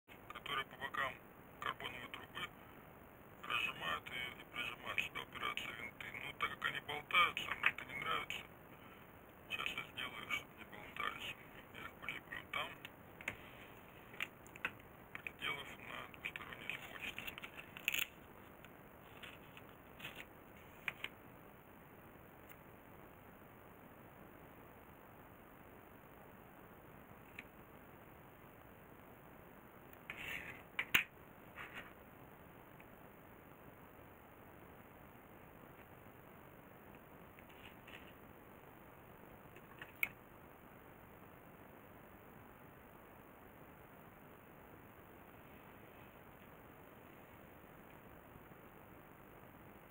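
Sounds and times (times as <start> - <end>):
room hiss: 0.1 - 49.9.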